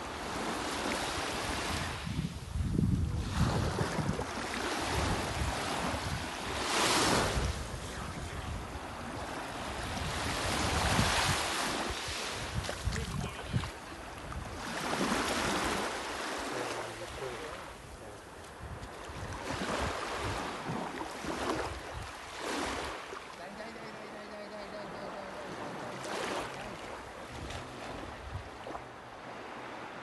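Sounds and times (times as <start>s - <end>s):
small sea waves washing ashore: 0.0s - 30.0s
wind buffeting microphone: 1.5s - 15.6s.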